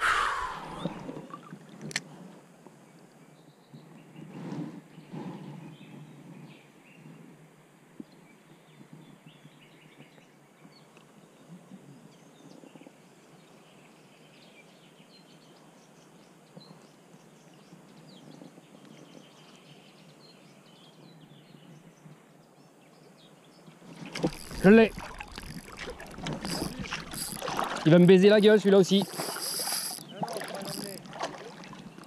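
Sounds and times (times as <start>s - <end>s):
faint birdsong: 8.0s - 32.0s.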